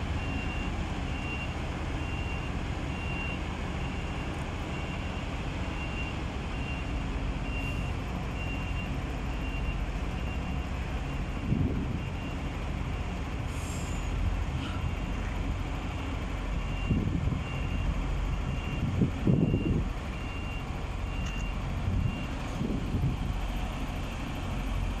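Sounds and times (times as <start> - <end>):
truck diesel engine running: 0.0 - 25.0
reversing alarm beeping: 0.2 - 13.2, 16.6 - 22.4.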